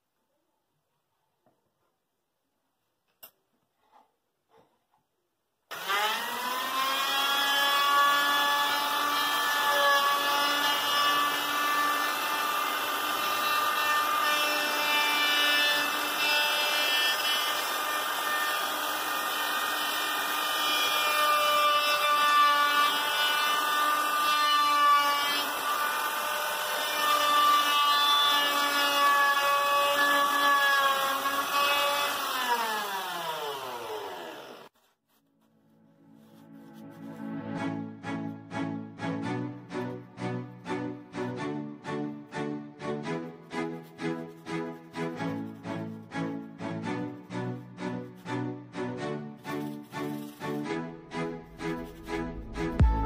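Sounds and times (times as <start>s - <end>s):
router whining: 5.7s - 34.7s.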